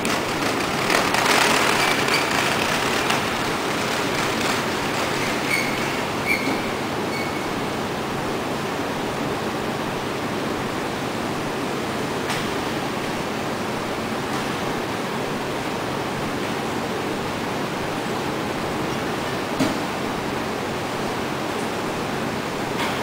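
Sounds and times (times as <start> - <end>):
heat-shrink tunnel air noise: 0.0 - 23.0.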